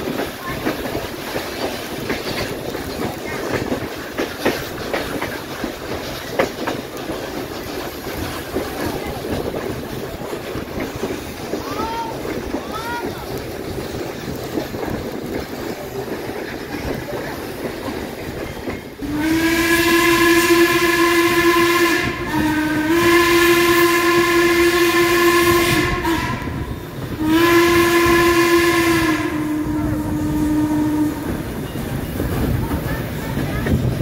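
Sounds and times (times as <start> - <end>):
train running noise: 0.0 - 34.0
steam whistle blasts: 19.0 - 31.4.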